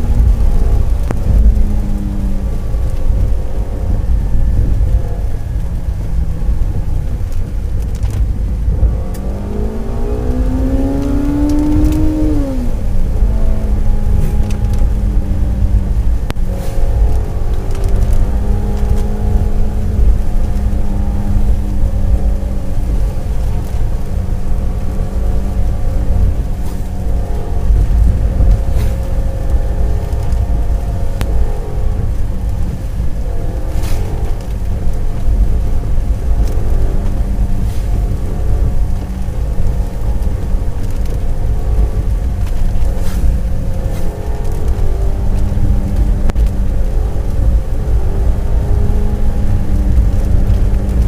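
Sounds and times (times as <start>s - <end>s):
car engine running: 0.0s - 51.0s
road rumble on wet road: 0.0s - 51.0s.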